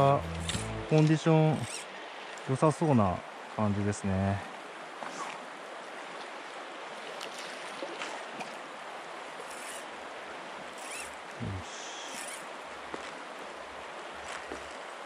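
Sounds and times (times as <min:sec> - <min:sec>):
short low sound: 0:00.0 - 0:01.1
river current rushing: 0:00.0 - 0:03.6, 0:04.6 - 0:15.0.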